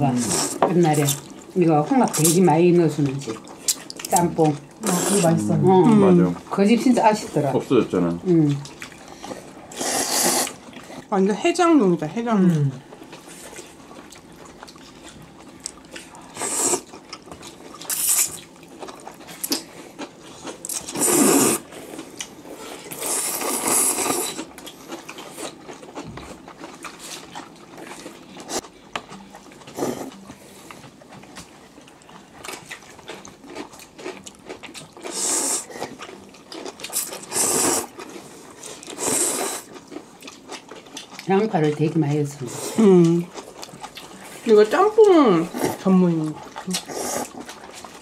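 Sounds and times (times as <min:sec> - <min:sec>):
quiet chewing: 0:00.4 - 0:06.6, 0:08.2 - 0:11.2, 0:12.5 - 0:48.0
person slurping noodles: 0:09.7 - 0:10.6, 0:20.9 - 0:21.7, 0:22.9 - 0:24.4, 0:35.1 - 0:35.7, 0:37.0 - 0:37.9, 0:39.0 - 0:39.7.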